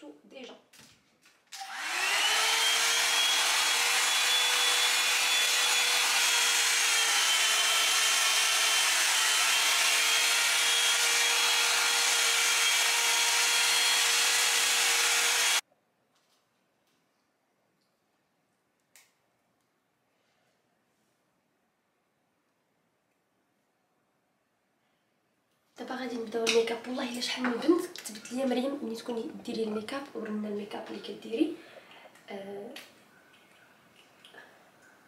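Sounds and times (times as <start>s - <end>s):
hair dryer brush whine: 1.6s - 15.6s.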